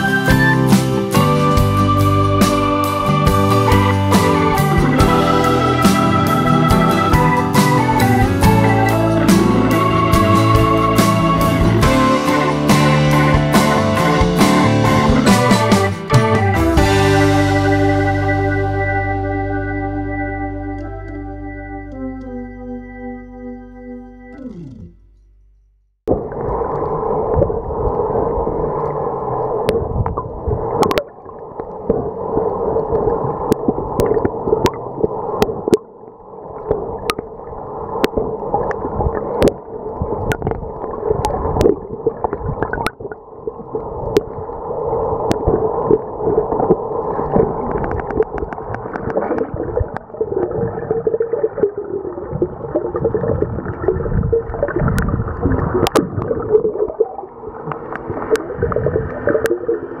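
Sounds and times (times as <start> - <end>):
water sloshing underwater: 26.1 - 60.0.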